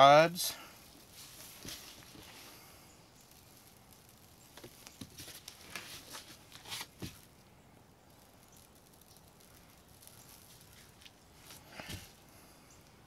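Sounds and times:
faint handling noise: 0:00.8 - 0:02.6
soft crackles and taps: 0:00.9 - 0:02.5, 0:03.2 - 0:07.4, 0:08.1 - 0:12.2.

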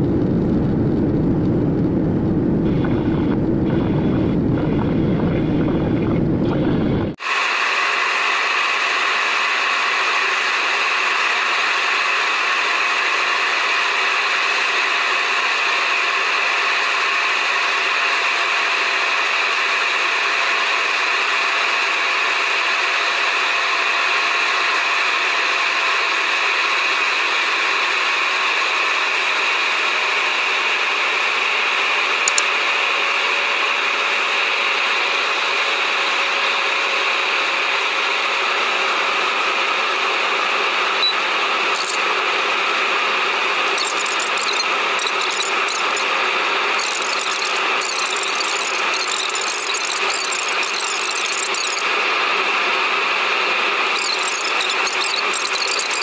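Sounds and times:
jet airliner cabin noise: 0:00.0 - 0:15.6, 0:40.8 - 0:56.0.

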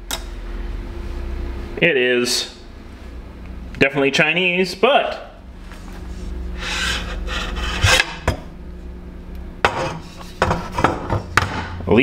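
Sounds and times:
steady low hum: 0:00.0 - 0:12.0
parts rubbing and rustling: 0:05.7 - 0:08.2, 0:09.7 - 0:11.3.

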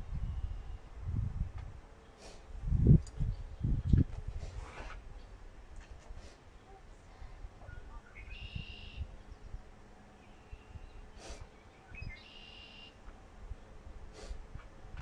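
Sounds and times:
songbird singing buzzy trill: 0:00.0 - 0:00.9, 0:02.8 - 0:04.1, 0:06.5 - 0:13.7.

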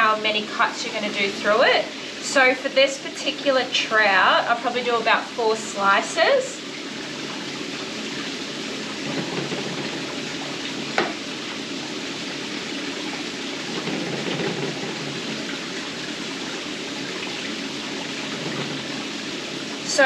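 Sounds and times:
water hissing: 0:04.8 - 0:20.0.

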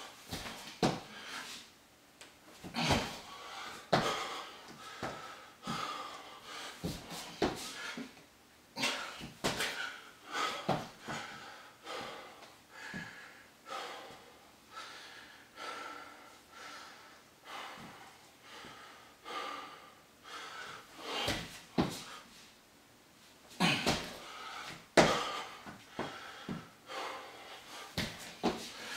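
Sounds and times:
man panting hard: 0:00.2 - 0:01.6, 0:02.7 - 0:08.2, 0:08.8 - 0:22.4, 0:23.6 - 0:28.9
hands and feet thumping wooden floor: 0:00.3 - 0:01.1, 0:02.6 - 0:03.2, 0:03.9 - 0:04.2, 0:09.2 - 0:09.8, 0:23.6 - 0:24.2, 0:25.0 - 0:25.3, 0:28.0 - 0:28.7.

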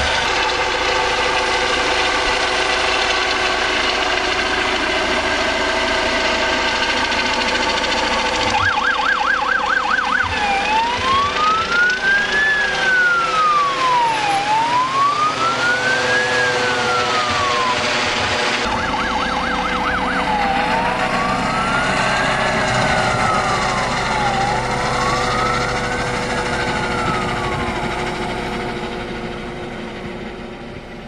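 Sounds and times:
emergency vehicle siren: 0:00.0 - 0:31.0
loud steady engine drone: 0:00.0 - 0:31.0.

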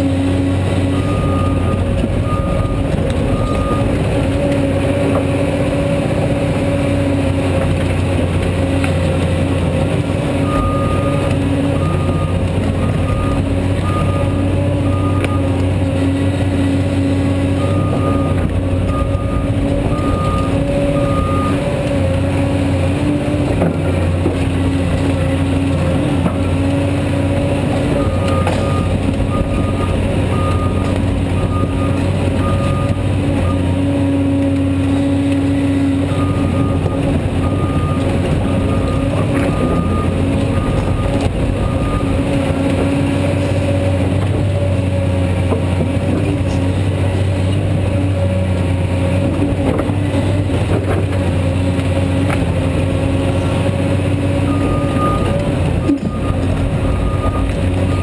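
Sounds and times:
excavator engine and hydraulics: 0:00.0 - 0:58.0
backup alarm beeping: 0:01.0 - 0:04.0, 0:17.6 - 0:21.7, 0:28.0 - 0:33.7, 0:36.1 - 0:42.5, 0:54.5 - 0:58.0.

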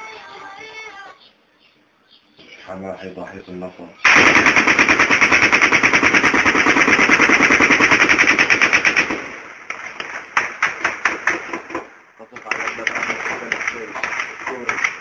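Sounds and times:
automatic gunfire: 0:04.0 - 0:15.0
separate gunshots: 0:04.0 - 0:15.0.

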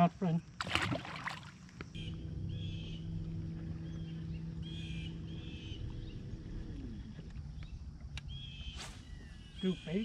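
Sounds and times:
electric trolling motor humming: 0:02.0 - 0:08.5
bird chirping: 0:02.0 - 0:10.0.

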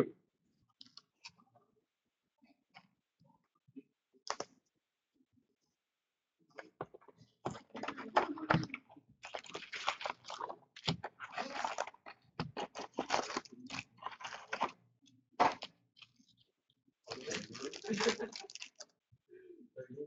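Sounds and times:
plastic wrapping crinkling and tearing: 0:09.2 - 0:14.8, 0:17.1 - 0:18.9.

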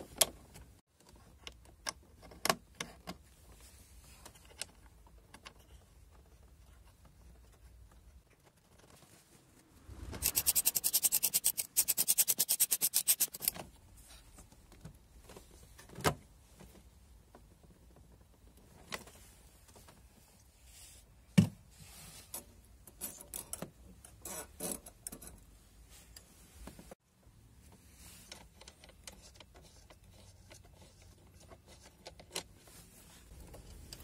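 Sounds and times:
ratchet wrench clicking: 0:10.2 - 0:13.5.

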